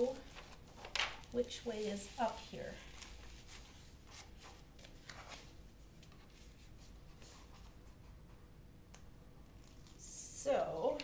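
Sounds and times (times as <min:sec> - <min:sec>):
rustling of canvas and paper: 0:00.0 - 0:08.4.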